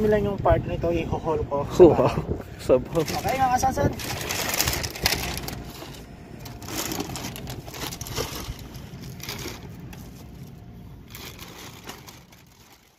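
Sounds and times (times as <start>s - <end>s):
plastic bags rustling: 2.9s - 12.9s.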